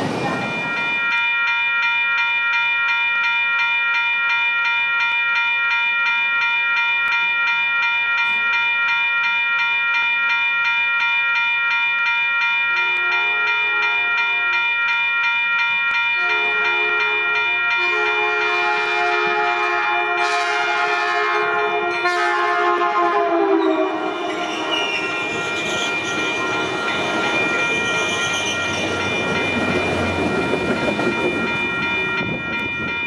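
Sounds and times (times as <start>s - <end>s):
electronic crossing bell ringing: 0.2s - 33.0s
train horn blasts: 17.8s - 25.0s.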